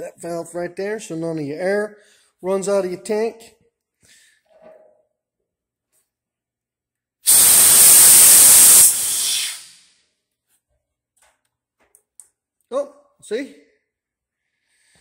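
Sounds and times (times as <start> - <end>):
compressed air blasting from valve: 7.2 - 9.9.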